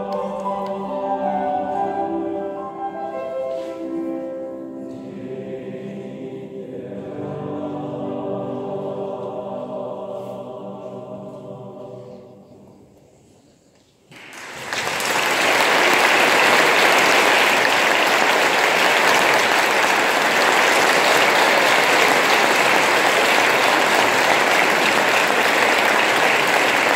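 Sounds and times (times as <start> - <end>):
audience applause: 14.1 - 26.9.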